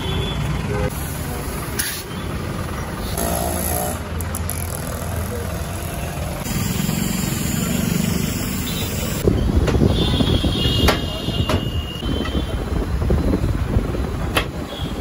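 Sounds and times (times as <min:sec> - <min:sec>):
vehicle engine hum: 0:00.0 - 0:09.9
road traffic noise: 0:00.0 - 0:15.0.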